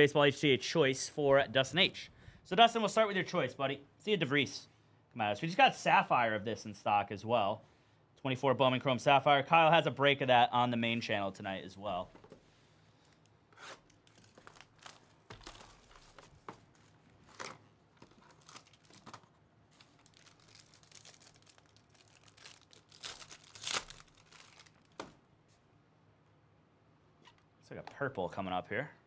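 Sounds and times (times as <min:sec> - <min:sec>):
wrapper crinkling: 0:13.0 - 0:25.1
foil pack tearing open: 0:13.6 - 0:16.3, 0:17.3 - 0:25.0.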